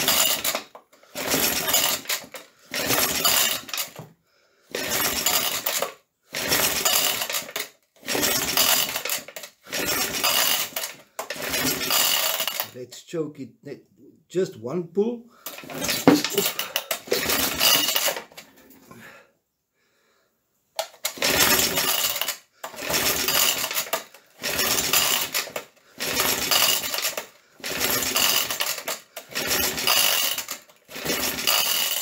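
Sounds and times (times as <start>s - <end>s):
rattling recoil pull starter: 0.0s - 4.0s, 4.7s - 12.8s, 15.4s - 18.5s, 20.8s - 32.0s.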